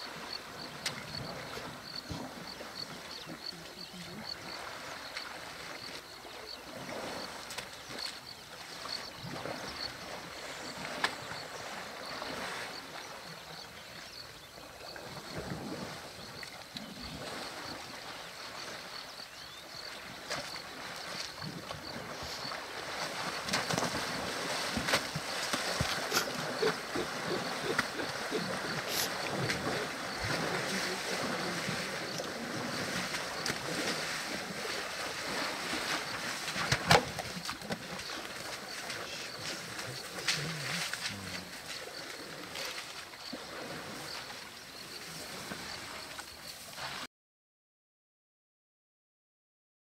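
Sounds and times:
water sloshing and splashing: 0.0 - 13.4, 14.0 - 47.0.

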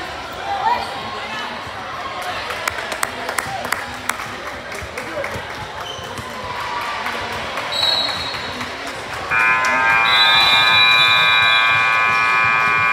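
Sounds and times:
scoreboard buzzer: 9.3 - 12.9.

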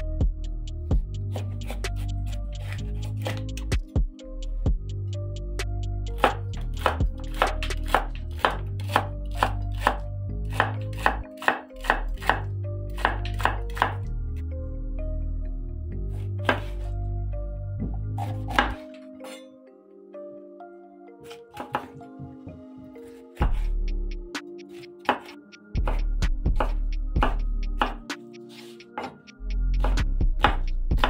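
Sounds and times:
background music: 0.0 - 31.0
knife chopping on wooden board: 2.6 - 3.7, 6.2 - 12.4, 13.0 - 14.0, 18.2 - 18.8, 23.4 - 23.7, 26.6 - 29.2, 29.8 - 31.0.

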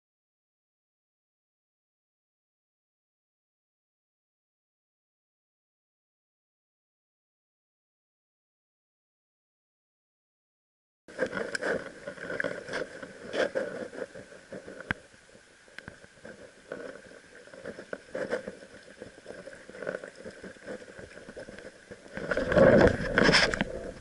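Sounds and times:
stream running over stones: 11.1 - 24.0.

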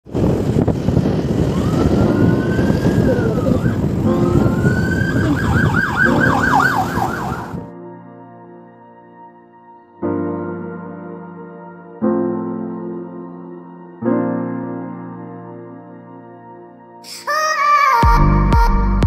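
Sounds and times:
scooter road and wind noise: 0.0 - 7.8
electronic siren wailing and yelping: 1.5 - 7.7
soft piano music: 3.7 - 19.0.

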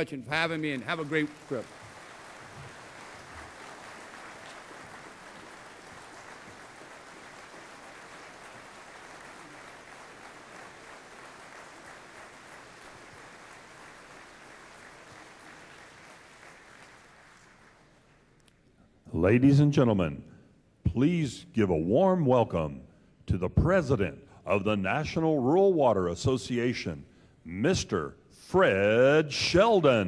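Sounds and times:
audience applauding: 0.0 - 18.2.

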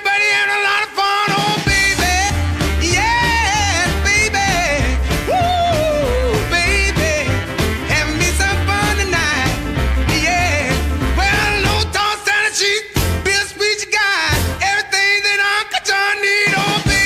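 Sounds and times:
song with bass beat: 1.3 - 14.8, 16.4 - 17.0.

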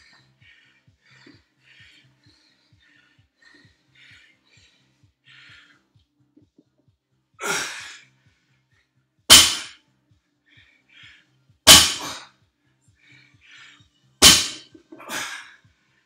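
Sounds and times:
breathing: 0.0 - 6.3, 8.0 - 9.1, 9.8 - 11.6, 12.3 - 16.0
barbell thudding on rubber floor: 9.3 - 9.7, 11.7 - 12.2, 14.2 - 14.6.

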